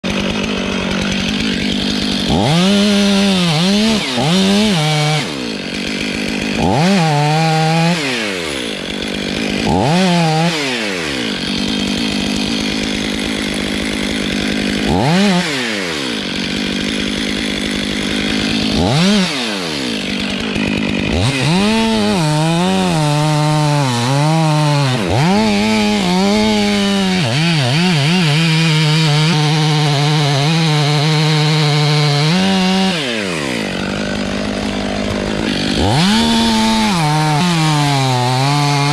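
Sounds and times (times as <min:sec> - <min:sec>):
chainsaw cutting wood: 0:00.0 - 0:38.9.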